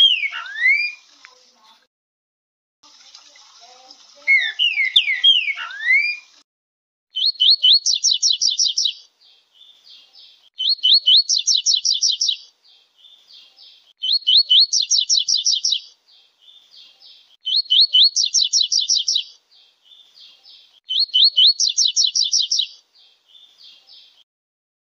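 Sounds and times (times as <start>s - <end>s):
bird song with fast trill: 0.0s - 1.0s, 4.3s - 6.3s, 7.1s - 24.2s
bird whistled song: 0.0s - 1.0s, 4.3s - 6.3s, 7.1s - 9.1s, 10.6s - 12.5s, 14.0s - 15.9s, 17.4s - 20.0s, 20.9s - 22.8s.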